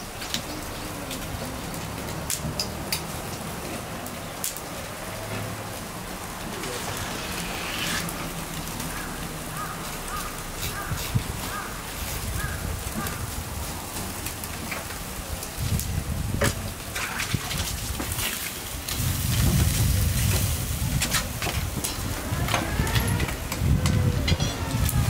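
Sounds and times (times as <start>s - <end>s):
fish sizzling on a grill: 0.0s - 25.0s
sharp pops: 6.4s - 8.6s.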